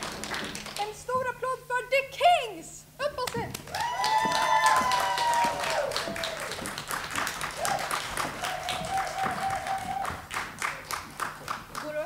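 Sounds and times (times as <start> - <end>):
small audience clapping: 0.0 - 1.0, 3.3 - 12.0
long held cheer: 3.7 - 6.8, 7.4 - 10.9.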